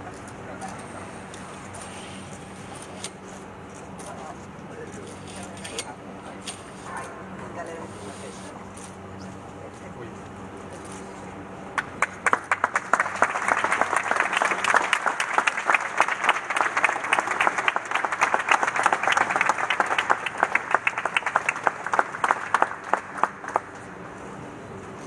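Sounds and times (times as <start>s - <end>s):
audience applauding: 11.8s - 23.8s.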